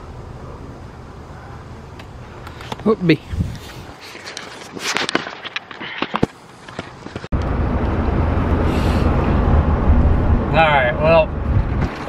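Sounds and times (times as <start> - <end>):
car engine rumble: 0.0 - 4.6, 6.3 - 12.0
road noise: 0.0 - 12.0
camera handling rustles: 3.5 - 7.3.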